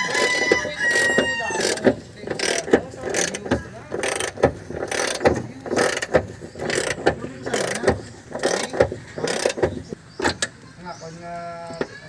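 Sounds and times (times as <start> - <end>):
hand ratchet clicking: 0.0 - 10.6.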